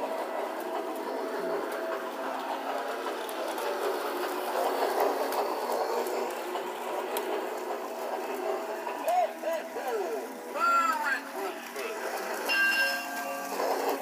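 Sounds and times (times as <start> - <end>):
toy train motor whirring: 0.0 - 14.0
clicks at rail joints: 0.2 - 9.9.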